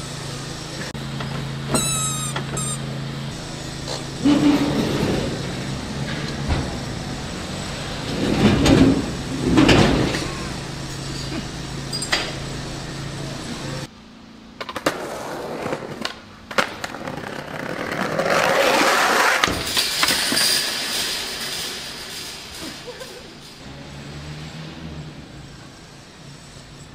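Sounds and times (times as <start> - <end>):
steady low hum: 0.0 - 14.6
skateboard clacks: 14.6 - 20.2
skateboard wheels rolling on paving: 14.6 - 20.4.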